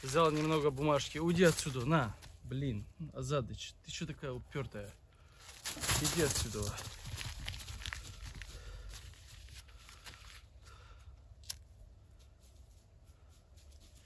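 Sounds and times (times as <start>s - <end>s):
rustling dry twigs and paper: 0.0s - 2.5s, 5.3s - 14.0s.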